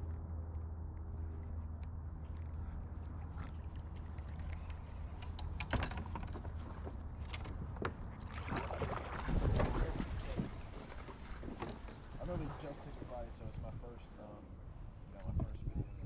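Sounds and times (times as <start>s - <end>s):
paddle dipping into water: 3.0s - 13.3s
water splashing: 7.3s - 13.5s.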